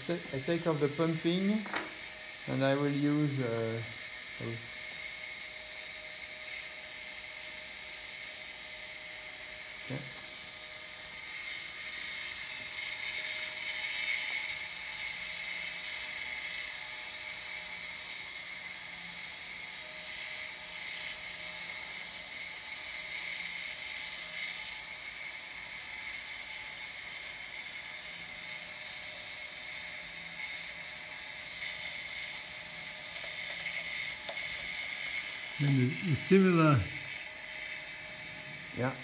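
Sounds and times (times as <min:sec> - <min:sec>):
lathe high-pitched whine: 0:00.0 - 0:39.0.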